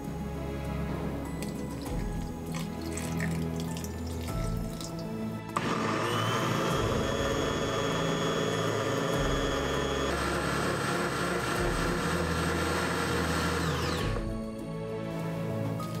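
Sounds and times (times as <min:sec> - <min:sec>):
blender motor grinding: 0:05.6 - 0:14.3.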